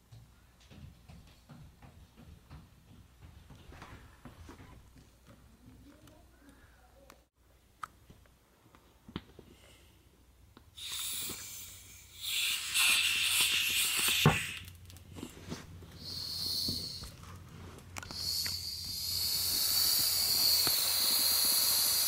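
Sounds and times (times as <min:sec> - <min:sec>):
air hissing from valve: 0:10.8 - 0:14.7, 0:16.0 - 0:17.2, 0:18.0 - 0:22.0.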